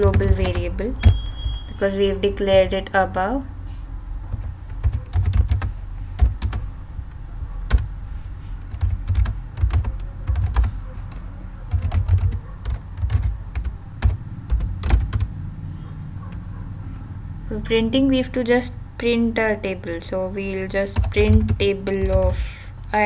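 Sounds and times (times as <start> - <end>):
computer keyboard typing: 0.0 - 2.8, 4.3 - 7.9, 8.6 - 15.4, 20.8 - 22.4.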